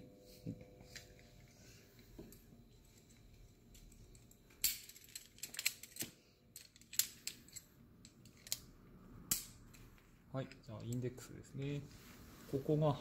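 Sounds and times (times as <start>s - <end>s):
carabiners clicking and clinking: 3.8s - 8.7s.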